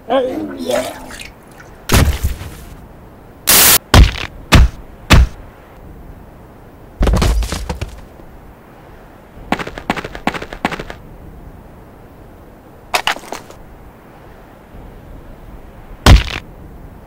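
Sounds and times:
sharp whacks: 0:16.1 - 0:16.4.

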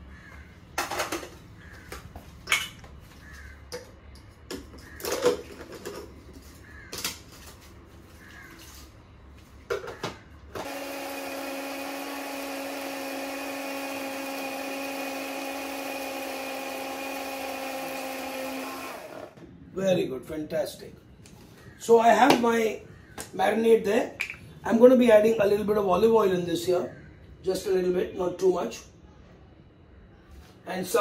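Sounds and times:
electric blender running: 0:10.6 - 0:19.4.

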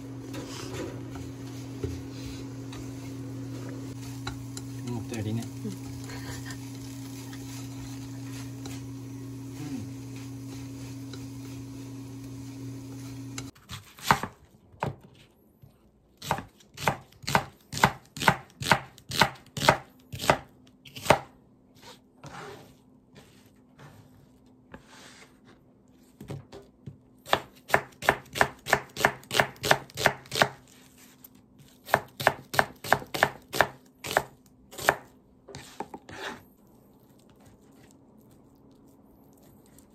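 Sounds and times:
steady hum: 0:00.0 - 0:13.5
knife chopping on cutting board: 0:13.5 - 0:15.0, 0:16.2 - 0:21.3, 0:27.2 - 0:30.6, 0:31.8 - 0:36.4.

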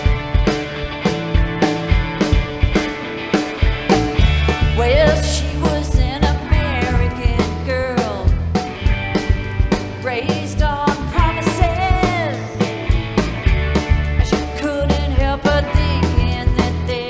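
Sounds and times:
drum beat: 0:00.0 - 0:14.6
guitar: 0:00.0 - 0:17.0
woman singing: 0:04.7 - 0:08.4, 0:10.0 - 0:12.6, 0:14.2 - 0:17.0.

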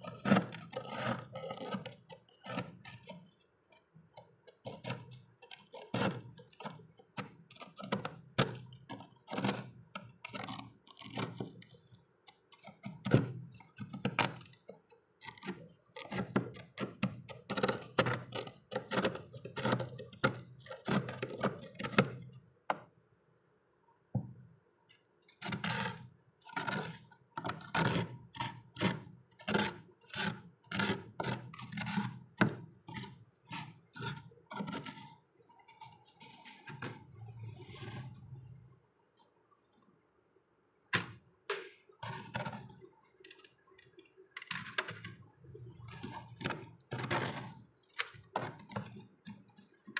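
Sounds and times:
knife scraping frost off freezer: 0:00.0 - 0:22.3, 0:25.3 - 0:38.2.

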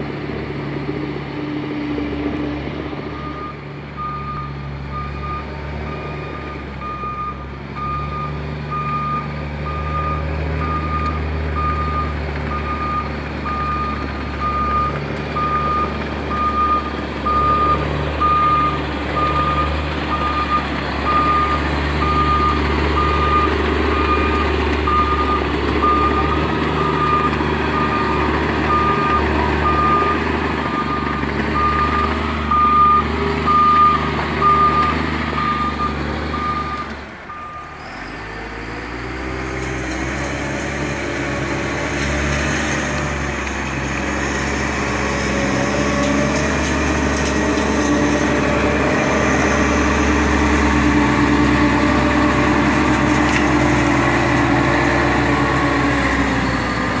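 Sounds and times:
diesel engine running: 0:00.0 - 0:57.0
reversing alarm beeping: 0:03.2 - 0:37.9.

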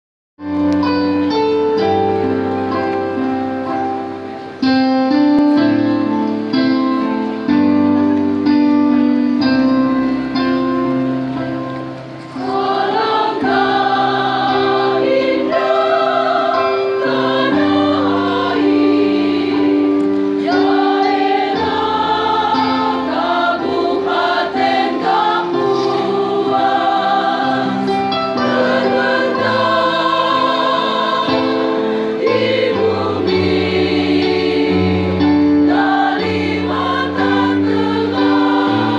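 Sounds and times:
keyboard chords: 0:00.4 - 0:38.9
choir singing a hymn: 0:00.8 - 0:38.9.

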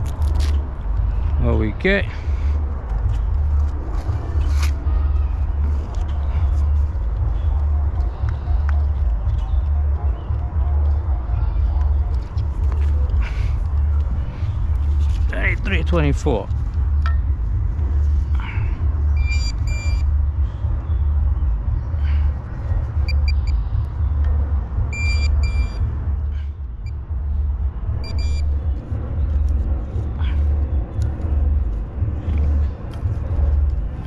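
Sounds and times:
low rumble: 0:00.0 - 0:34.0
metal detector beeping: 0:19.2 - 0:20.0, 0:23.0 - 0:23.6, 0:24.9 - 0:25.8, 0:28.0 - 0:28.5.

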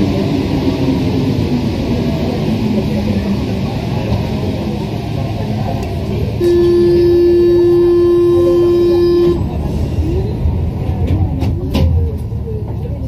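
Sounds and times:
train rumbling through tunnel: 0:00.0 - 0:13.0
train horn steady note: 0:06.4 - 0:09.6.

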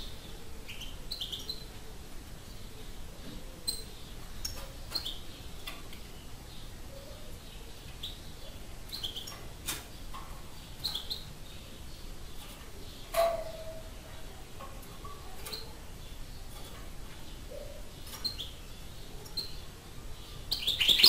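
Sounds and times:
goldfinch chirping: 0:00.7 - 0:01.7, 0:03.6 - 0:09.4, 0:20.5 - 0:21.0.

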